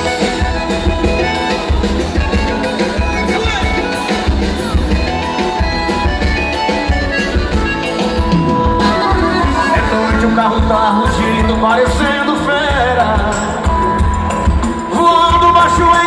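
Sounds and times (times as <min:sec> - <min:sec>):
bass drum beat: 0:00.0 - 0:16.0
live band music over loudspeakers: 0:00.0 - 0:16.0.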